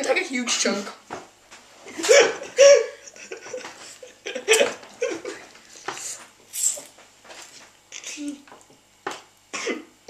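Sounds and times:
boys laughing: 0:01.9 - 0:05.6.

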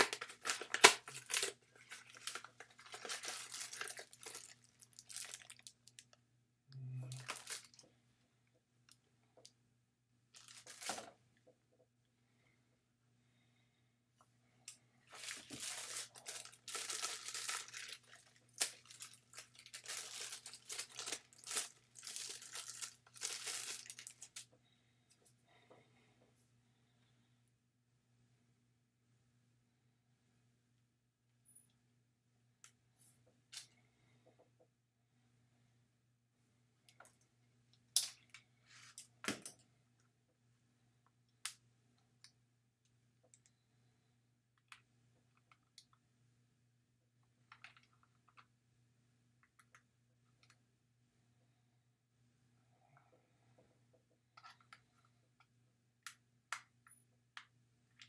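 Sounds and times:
packaging clicks and rustles: 0:00.0 - 0:06.1, 0:07.1 - 0:07.8, 0:10.4 - 0:11.1, 0:15.1 - 0:24.5
plastic wrapping crinkling and tearing: 0:00.0 - 0:06.1, 0:07.1 - 0:07.8, 0:10.4 - 0:11.0, 0:15.1 - 0:24.4
sharp crackle: 0:15.1 - 0:24.4.

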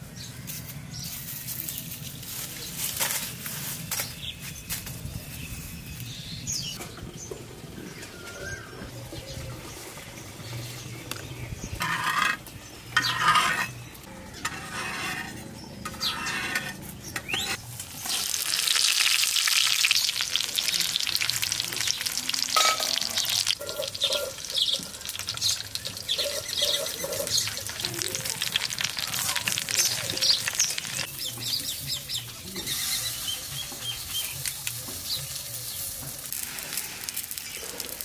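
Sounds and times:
fish frying in hot oil: 0:17.7 - 0:31.1.

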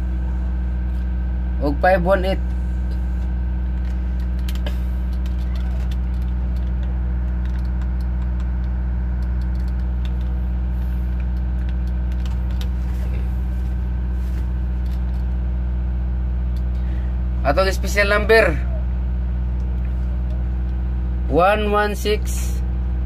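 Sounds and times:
low machinery drone: 0:00.0 - 0:23.0.

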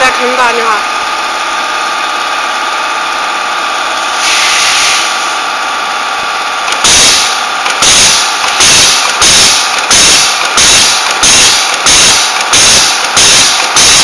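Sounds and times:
crimping machine humming: 0:00.0 - 0:14.0
compressed air hiss: 0:04.1 - 0:05.4, 0:06.8 - 0:14.0
loud machine thumps: 0:06.6 - 0:14.0.

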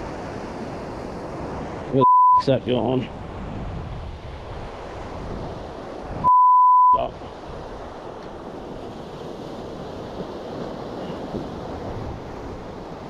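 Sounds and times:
waves washing over rocks: 0:00.0 - 0:06.2, 0:07.0 - 0:13.0
high censor beep: 0:02.0 - 0:02.5, 0:06.2 - 0:07.0.

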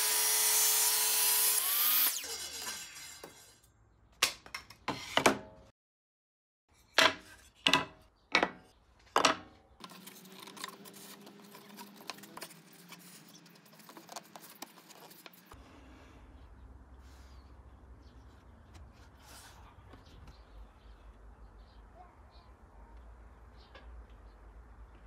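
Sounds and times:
table saw blade winding down: 0:00.0 - 0:03.6.

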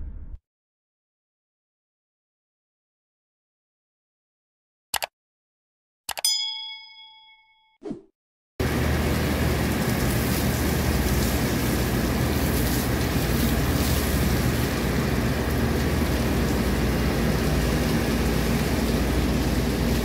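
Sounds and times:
water spraying and falling: 0:08.6 - 0:20.0.

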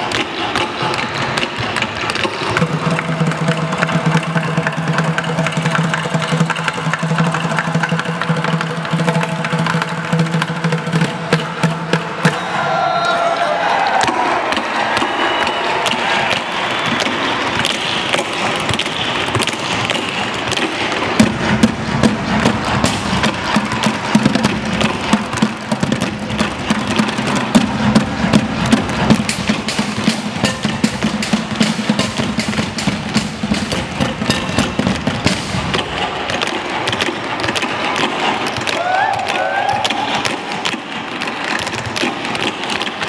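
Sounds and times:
music: 0:00.0 - 0:43.0
tap shoes striking boards: 0:13.9 - 0:43.0.

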